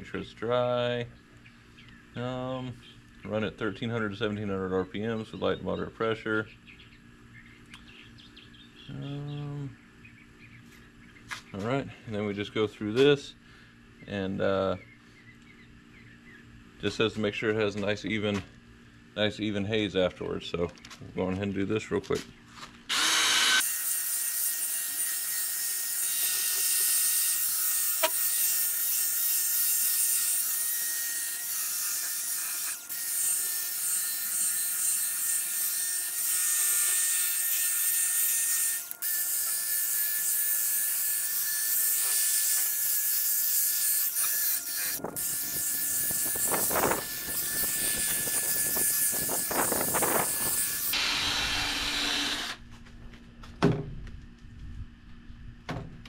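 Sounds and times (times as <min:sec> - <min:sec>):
cordless drill motor whine: 0:22.9 - 0:23.7, 0:44.2 - 0:52.6.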